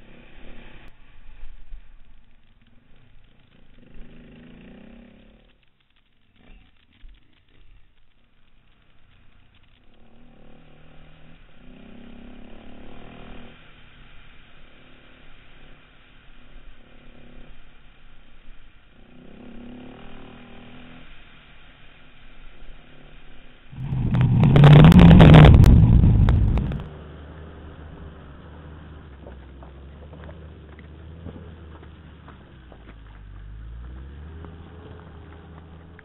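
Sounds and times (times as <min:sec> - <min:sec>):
steady rushing noise: 0:23.7 - 0:26.9
motorcycle engine: 0:23.7 - 0:33.4.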